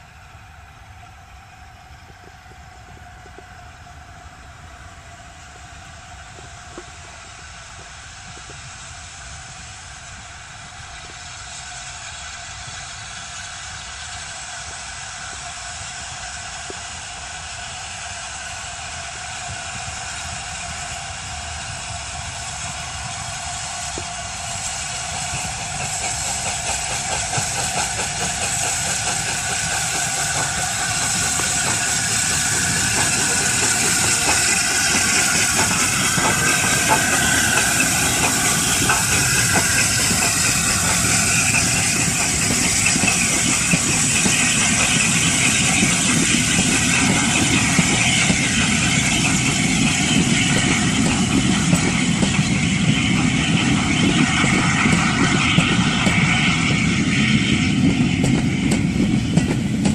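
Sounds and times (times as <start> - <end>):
steam locomotive passing: 0.0 - 59.9
wheels clicking over rail joints: 25.5 - 56.8.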